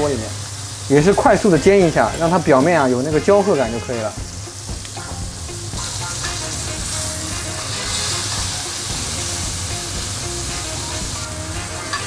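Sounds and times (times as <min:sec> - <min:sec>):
meat sizzling in a skillet: 0:00.0 - 0:12.0
background music with low beat: 0:01.3 - 0:12.0.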